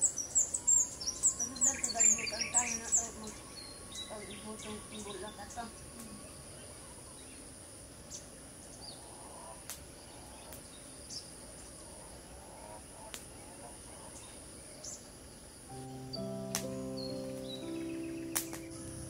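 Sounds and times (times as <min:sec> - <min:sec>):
bird chirps: 0:00.0 - 0:07.4, 0:15.7 - 0:19.0
high-pitched insect drone: 0:15.7 - 0:19.0
sharp clicks: 0:18.3 - 0:18.8.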